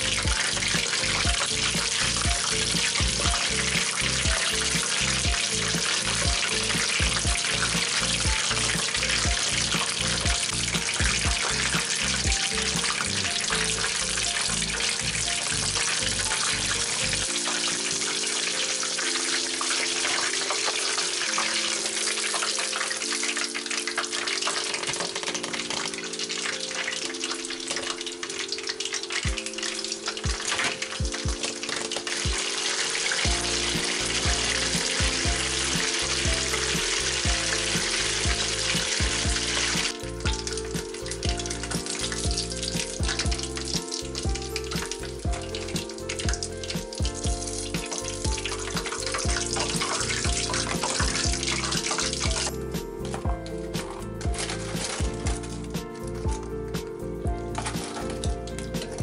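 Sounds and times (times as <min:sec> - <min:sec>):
bass beat: 0:00.0 - 0:13.8, 0:33.3 - 0:59.0
background music: 0:00.0 - 0:59.0
chicken sizzling in hot oil: 0:00.0 - 0:59.0.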